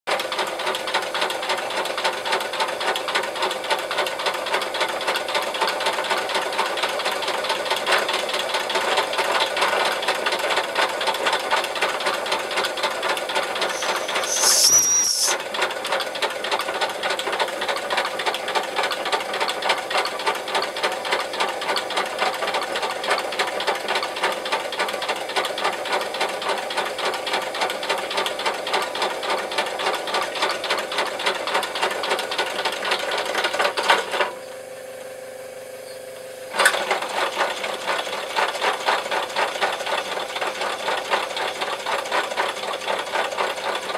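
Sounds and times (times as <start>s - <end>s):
clatter of spinning wheels: 0.1s - 34.3s, 36.6s - 43.9s
toy locomotive cylinders exhausting: 13.5s - 15.4s
high whistling valve hiss: 13.6s - 15.4s.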